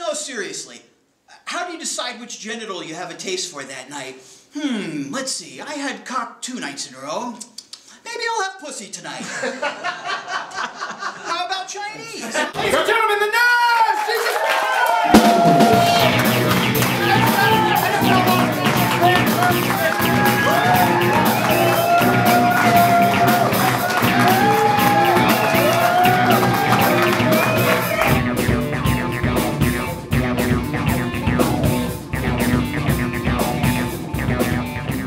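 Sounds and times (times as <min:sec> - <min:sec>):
rock music: 0:15.0 - 0:35.0.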